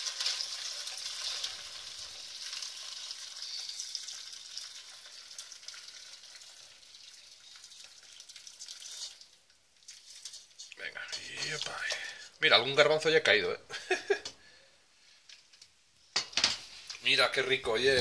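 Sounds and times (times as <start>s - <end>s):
broth pouring through a strainer: 0.0s - 12.2s.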